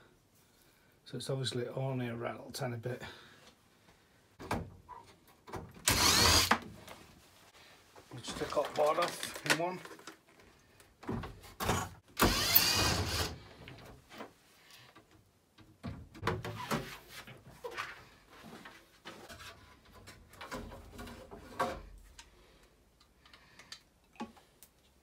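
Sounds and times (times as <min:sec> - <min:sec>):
small electric motor whirring: 0:05.9 - 0:06.6, 0:12.2 - 0:13.4.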